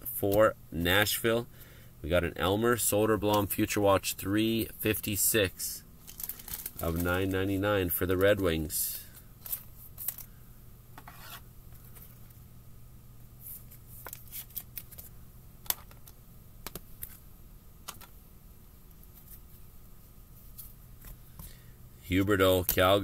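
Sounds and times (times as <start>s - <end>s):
steady low hum: 0.0s - 23.0s
cards rustling and clicking: 6.0s - 8.4s, 9.0s - 10.4s, 13.5s - 17.2s.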